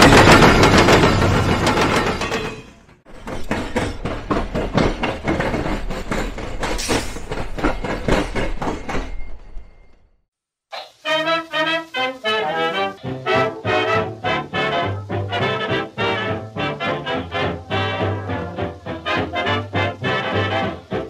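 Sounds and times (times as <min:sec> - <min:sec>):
wheels knocking over rail gaps: 0:00.0 - 0:09.9
train passing: 0:00.0 - 0:10.2, 0:10.8 - 0:21.0.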